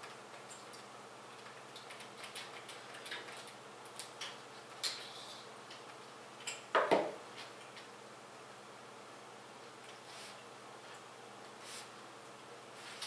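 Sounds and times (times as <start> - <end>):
computer parts clicking and tapping: 0.0 - 5.1.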